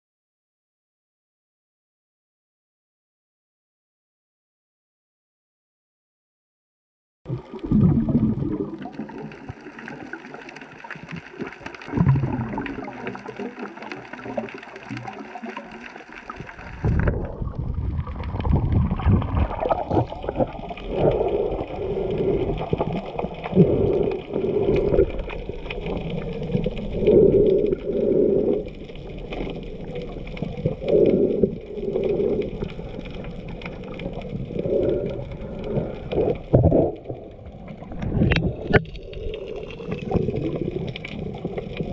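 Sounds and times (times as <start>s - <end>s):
muffled low water surges: 7.3s - 41.9s
muffled water sloshing underwater: 7.3s - 41.9s.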